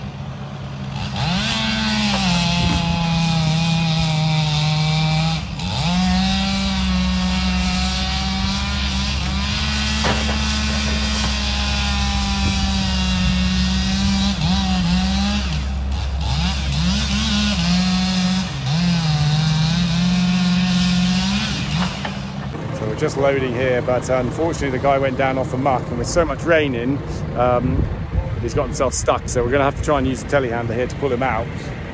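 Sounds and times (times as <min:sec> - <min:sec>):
excavator diesel engine: 0:00.0 - 0:31.9.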